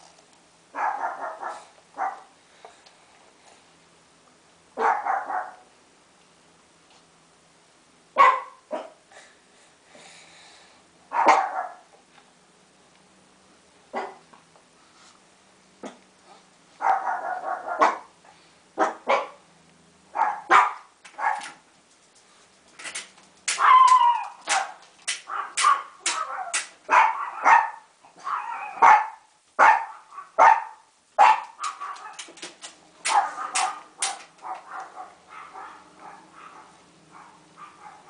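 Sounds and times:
dog barking: 0.8 - 2.3, 4.8 - 5.7, 8.2 - 9.0, 11.1 - 11.9, 13.9 - 14.2, 16.8 - 18.1, 18.8 - 19.4, 20.1 - 21.6, 23.5 - 32.3, 33.1 - 38.0.

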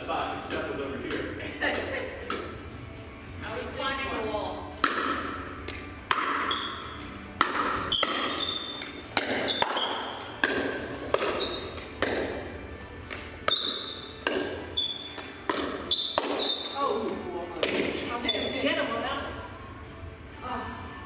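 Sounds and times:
paddles hitting plastic ball: 0.4 - 2.6, 4.8 - 18.1
ball bouncing on court: 4.8 - 12.5, 13.1 - 18.1.

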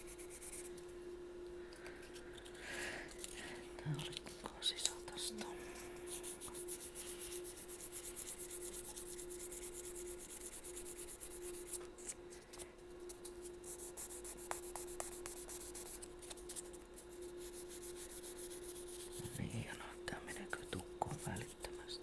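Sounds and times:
hand sanding wood: 6.1 - 11.8, 13.6 - 16.6, 17.4 - 19.4.

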